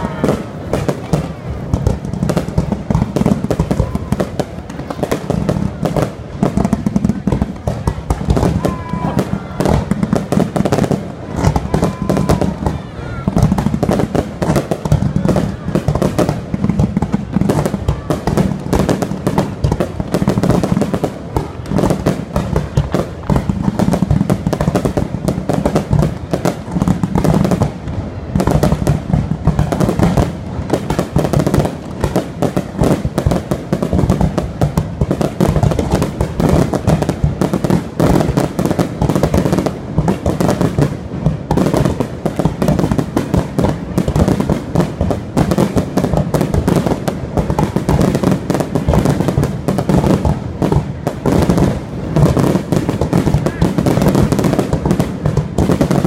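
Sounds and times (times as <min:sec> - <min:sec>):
fireworks bangs and crackles: 0:00.0 - 0:56.0.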